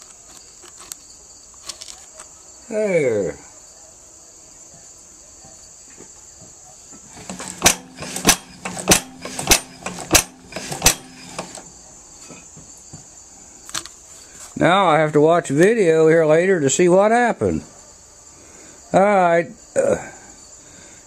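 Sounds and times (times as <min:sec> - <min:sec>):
crickets chirring: 0:00.0 - 0:21.0
sharp engine clicks: 0:07.2 - 0:11.6.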